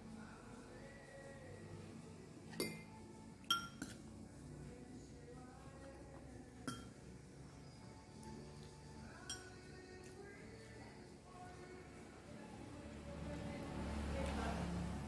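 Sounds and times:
tableware clinking: 2.5 - 4.0, 6.6 - 7.0, 9.2 - 9.7.

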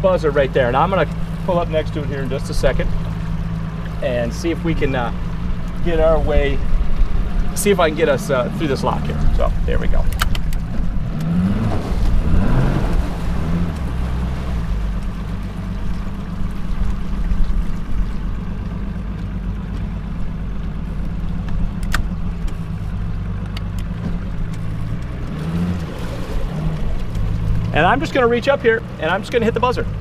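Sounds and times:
outboard motor running: 0.0 - 30.0
sharp click: 10.0 - 11.3.

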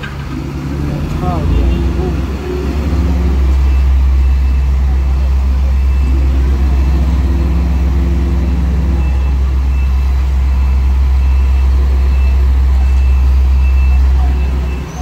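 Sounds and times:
heavy diesel engines droning: 0.0 - 15.0
steady engine tone: 0.0 - 15.0.

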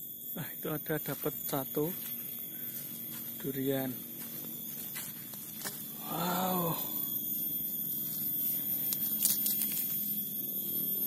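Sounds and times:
man humming: 6.0 - 7.1.

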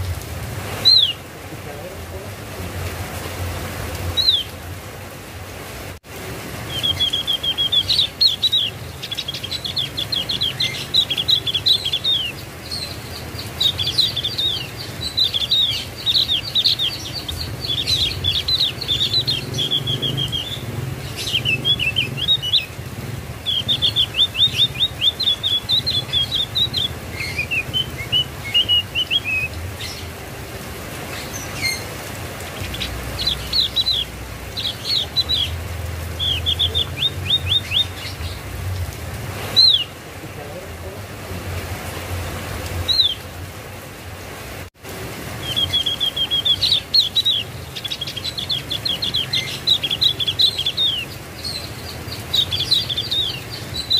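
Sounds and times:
bird singing rapid chattering phrases: 6.6 - 30.1, 31.1 - 38.5, 45.4 - 53.9.

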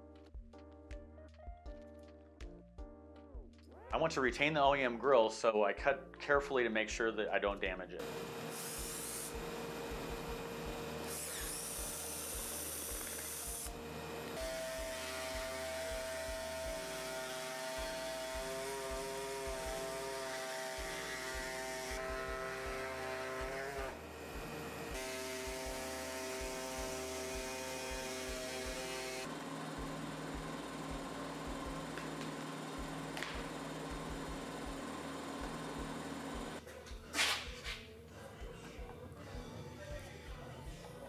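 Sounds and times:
electric power tool whining: 8.0 - 36.6.

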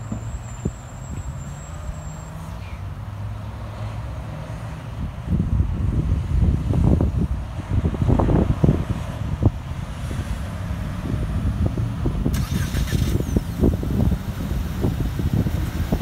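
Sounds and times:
passing vehicle hiss: 0.0 - 16.0
road traffic: 0.0 - 16.0
wind buffeting microphone: 4.9 - 16.0.

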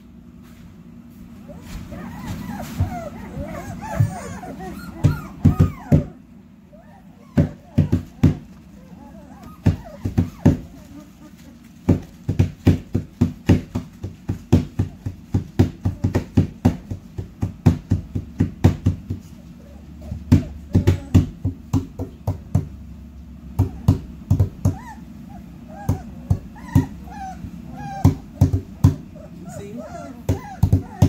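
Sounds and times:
puppies whimpering and yipping: 1.4 - 12.8, 19.2 - 21.4, 23.6 - 31.0
hands banging on wood: 2.1 - 6.1, 7.4 - 8.6, 9.4 - 11.0, 11.8 - 19.4, 20.1 - 22.8, 23.6 - 24.8, 27.8 - 29.1, 30.1 - 31.0.

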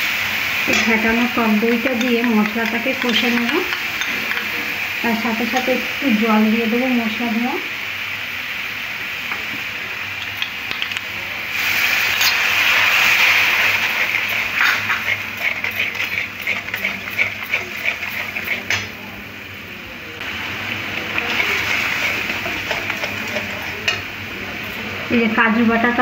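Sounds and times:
water sizzling in hot oil: 0.0 - 19.5, 20.2 - 25.0
metal spatula scraping pan: 13.5 - 19.0, 21.0 - 24.0.

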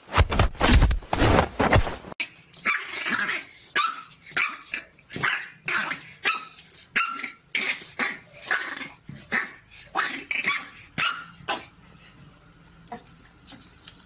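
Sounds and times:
puppy barking and yapping: 2.6 - 11.7.

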